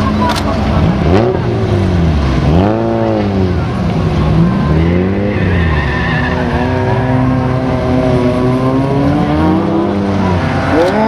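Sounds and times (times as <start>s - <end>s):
race car engines revving: 0.0s - 11.0s
tyre squeal: 4.7s - 7.9s.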